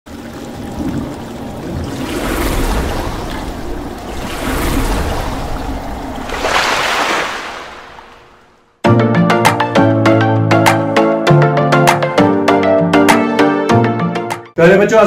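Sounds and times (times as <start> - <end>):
splashing rushing water: 0.1 - 8.8.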